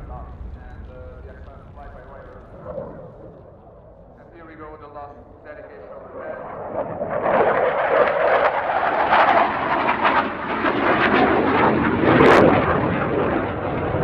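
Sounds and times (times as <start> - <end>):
fighter jet flying past: 0.0 - 14.0.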